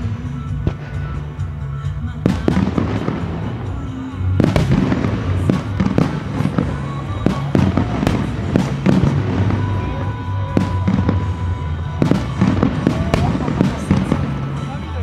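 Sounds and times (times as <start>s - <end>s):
fireworks bangs: 0.0s - 15.0s
music: 0.0s - 15.0s.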